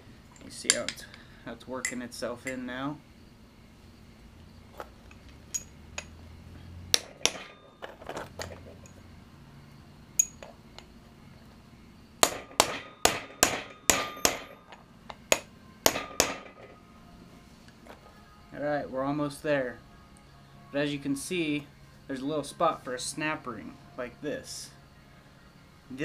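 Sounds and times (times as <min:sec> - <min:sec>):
hammer tapping metal: 0:00.6 - 0:01.1, 0:06.9 - 0:07.6, 0:10.2 - 0:10.9, 0:12.2 - 0:16.7.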